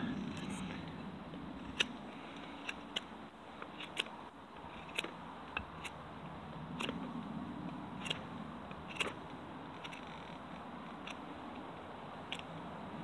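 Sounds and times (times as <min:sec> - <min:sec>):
knife carving wood: 0:01.6 - 0:06.0, 0:06.7 - 0:07.0, 0:07.7 - 0:11.7.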